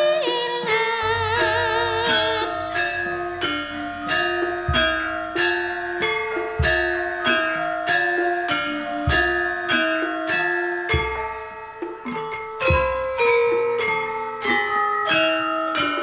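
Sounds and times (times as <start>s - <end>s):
gamelan music: 0.0s - 16.0s
held wavering note: 0.0s - 16.0s
deep low gong strikes: 1.1s - 7.8s.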